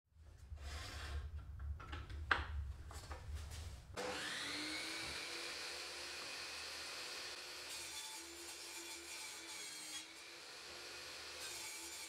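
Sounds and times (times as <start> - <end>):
table saw motor whining: 4.0 - 7.8.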